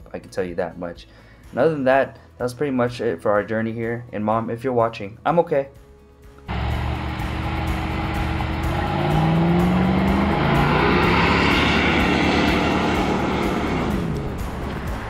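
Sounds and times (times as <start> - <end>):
engine revving: 6.5 - 15.0.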